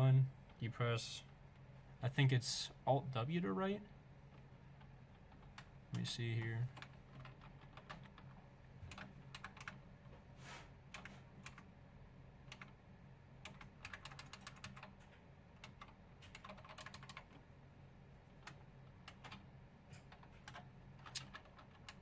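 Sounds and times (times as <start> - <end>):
low steady hum: 0.0 - 22.0
computer keyboard typing: 4.3 - 9.9, 10.9 - 11.7, 12.4 - 12.8, 13.4 - 17.4, 18.3 - 22.0.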